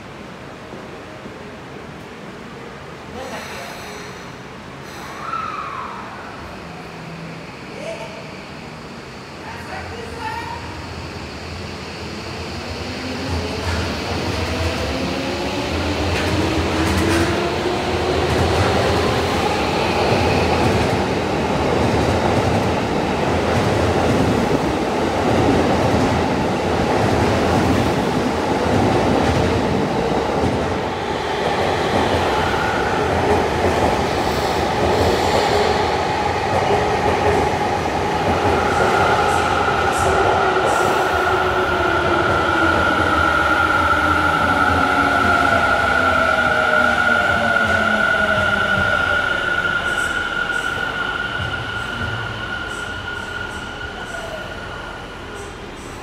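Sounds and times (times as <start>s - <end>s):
high train whine: 0.0s - 56.0s
subway train motors whining: 0.0s - 56.0s.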